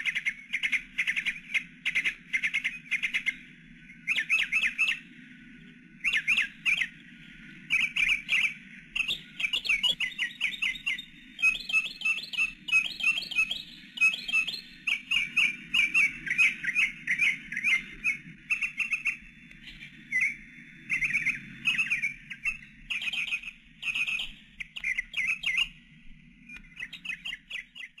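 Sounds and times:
bird squawks and chirps: 4.0s - 5.0s, 6.0s - 7.0s, 7.7s - 25.8s, 26.7s - 28.0s.

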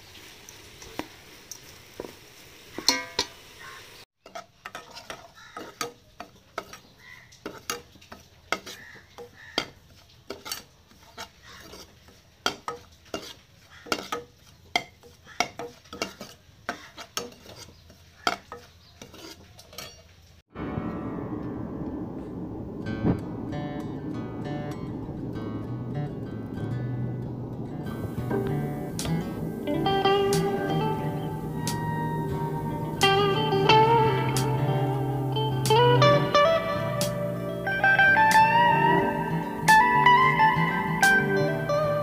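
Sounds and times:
metal ladle scraping metal pan: 4.2s - 20.1s
guitar music: 20.5s - 42.0s.

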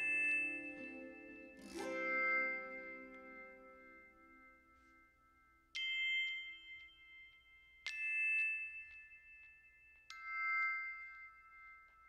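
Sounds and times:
bell-like chords: 0.0s - 9.5s.

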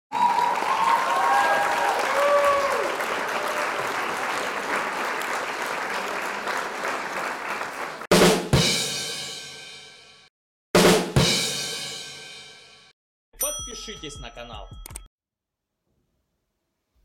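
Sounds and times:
crowd applauding: 0.1s - 8.1s
crowd cheering: 0.1s - 8.1s.

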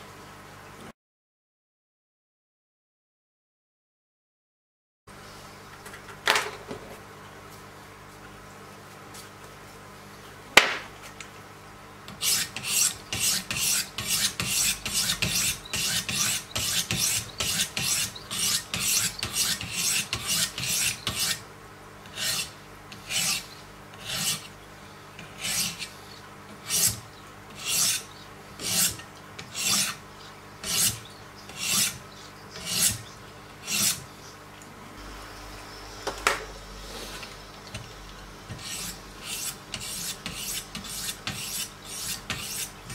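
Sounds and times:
sharpening stones rasping on blade: 12.1s - 21.4s, 22.1s - 24.5s, 25.2s - 25.9s, 26.6s - 30.0s, 30.6s - 32.0s, 32.6s - 33.0s, 33.6s - 34.0s, 38.5s - 42.9s.

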